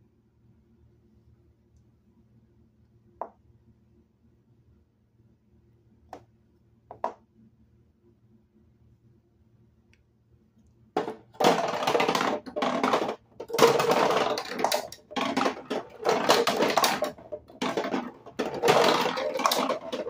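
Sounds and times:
plastic balls rolling and rattling: 11.0 - 20.0.

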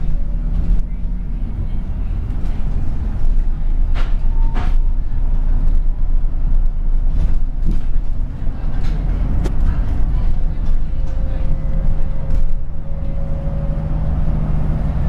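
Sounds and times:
bus drivetrain and road rumble: 0.0 - 15.0
bus body knocks and rattles: 2.2 - 5.9, 6.5 - 12.8.

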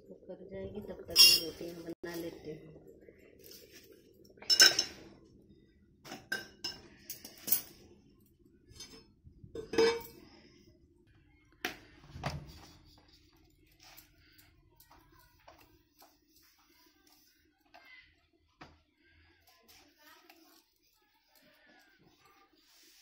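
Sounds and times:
steel pots and plates clanking: 1.1 - 2.0, 3.4 - 5.1, 6.1 - 7.8, 8.7 - 10.2.

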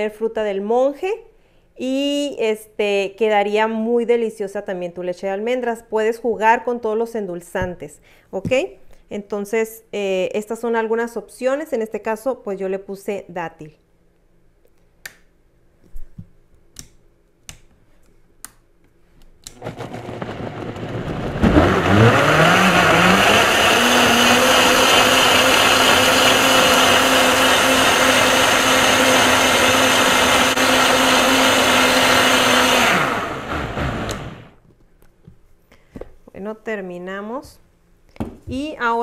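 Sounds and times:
blender motor running: 19.6 - 34.6.

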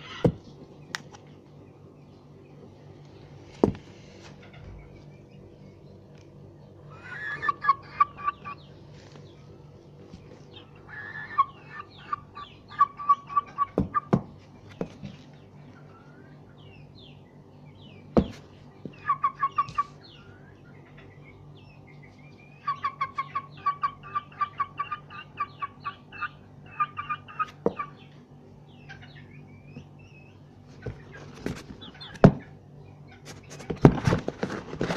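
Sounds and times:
steady low hum: 0.0 - 34.9
rooster clucking: 6.9 - 8.6, 10.6 - 14.2, 19.0 - 20.0, 22.6 - 28.0.

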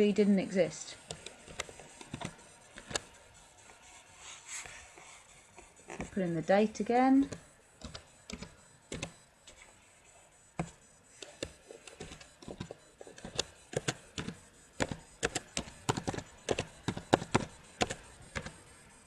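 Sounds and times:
typing on keyboard: 1.0 - 3.1, 6.0 - 9.2, 10.6 - 18.6.

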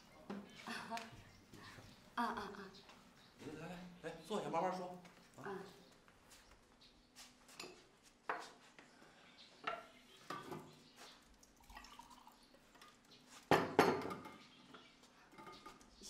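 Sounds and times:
crockery clinking and knocking: 9.6 - 10.8, 13.5 - 15.8.

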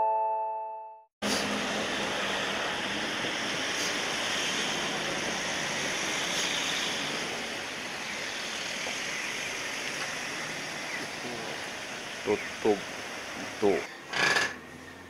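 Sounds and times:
outdoor street ambience: 1.2 - 15.0.

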